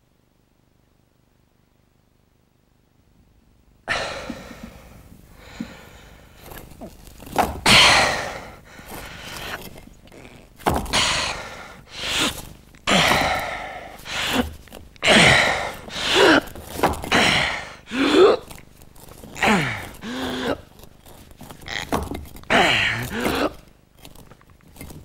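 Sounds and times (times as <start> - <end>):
man gasping and grunting: 3.9 - 6.4, 7.6 - 9.7, 10.8 - 18.5, 19.2 - 20.7, 22.5 - 23.7.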